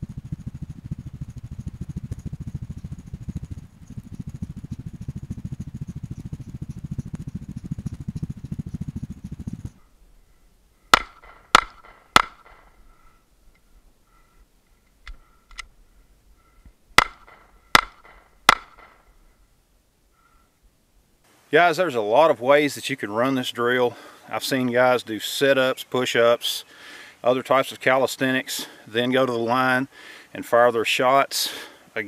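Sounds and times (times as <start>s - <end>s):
wind buffeting microphone: 0.0s - 9.9s
handgun shots: 11.0s - 12.7s, 17.0s - 19.0s
pistol reload clicks: 11.0s - 12.7s, 17.0s - 19.0s.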